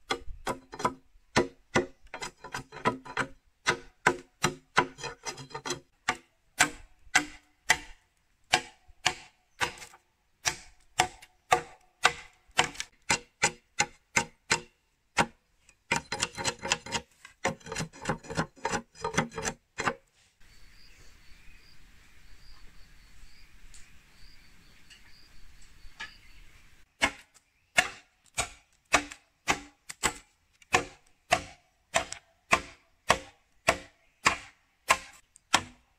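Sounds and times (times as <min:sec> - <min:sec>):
sharp chopping strikes: 0:02.9 - 0:05.0, 0:06.0 - 0:17.6, 0:27.0 - 0:35.8.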